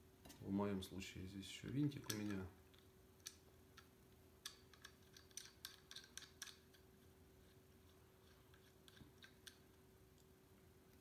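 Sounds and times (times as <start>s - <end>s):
small metal parts clicking: 1.7s - 6.8s.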